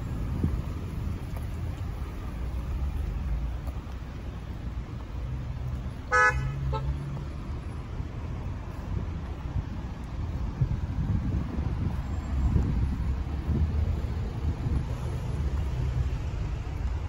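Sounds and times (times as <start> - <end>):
car horn toots: 6.1 - 6.9.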